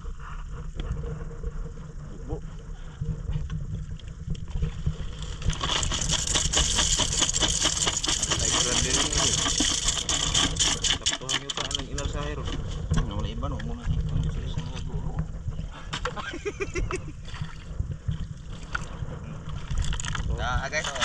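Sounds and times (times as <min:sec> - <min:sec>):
wind rumble on microphone: 0:00.0 - 0:21.0
snail shells clattering: 0:05.2 - 0:12.2.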